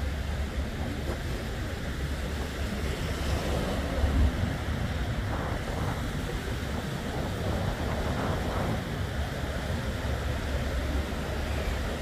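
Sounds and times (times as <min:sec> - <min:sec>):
small waves washing on shore: 0:00.0 - 0:12.0
wind rumbling on microphone: 0:00.0 - 0:12.0.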